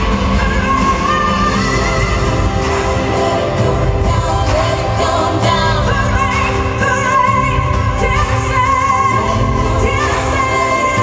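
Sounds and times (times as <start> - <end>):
band backing track with low beat: 0.0 - 11.0
woman singing pop ballad: 0.0 - 11.0.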